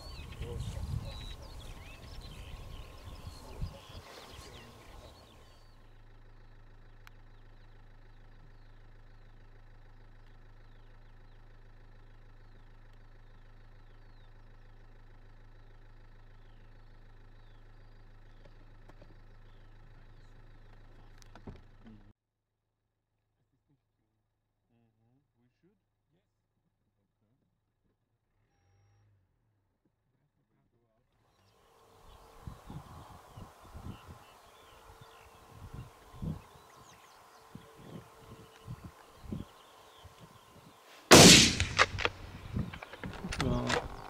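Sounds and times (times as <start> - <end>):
birds chirping: 0.0 - 22.1, 31.3 - 44.0
steady low hum: 0.0 - 22.1, 31.7 - 44.0.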